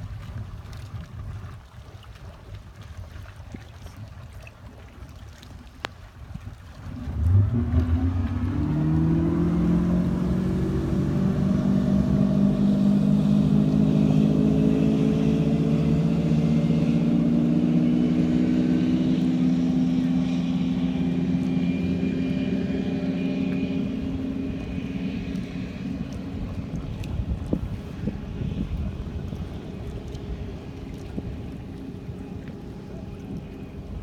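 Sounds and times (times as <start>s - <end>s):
motorboat engine at full throttle: 0.0s - 34.0s.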